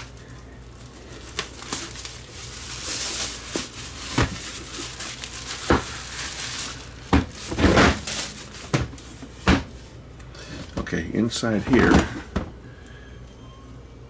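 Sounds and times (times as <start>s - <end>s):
plastic wrapping crinkling: 0.0s - 9.4s.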